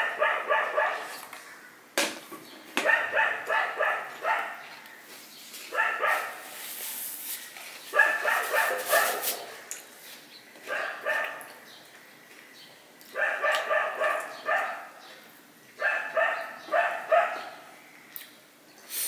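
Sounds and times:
dogs barking: 0.0 - 1.2, 2.8 - 4.7, 5.7 - 6.4, 7.9 - 9.6, 10.6 - 11.6, 13.1 - 15.0, 15.8 - 17.7.

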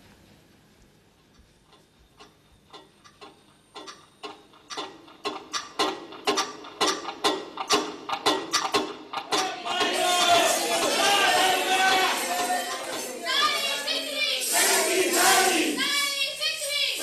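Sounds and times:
sharp percussive strikes: 7.3 - 16.1.

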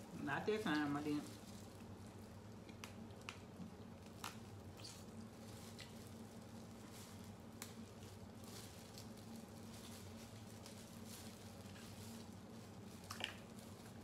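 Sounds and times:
low steady hum: 0.0 - 14.0
wet squishing of seafood: 10.9 - 14.0.

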